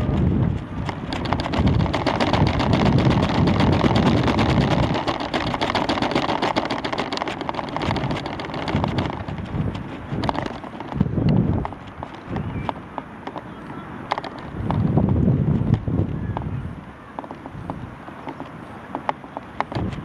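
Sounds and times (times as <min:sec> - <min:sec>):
clicking and rattling payload: 0:00.0 - 0:15.0
wind rumbling over microphone: 0:00.0 - 0:20.0.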